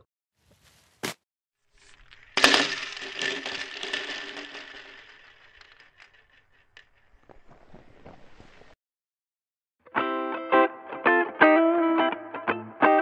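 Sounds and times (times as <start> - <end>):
kibble pouring into a bowl: 1.8 - 6.1.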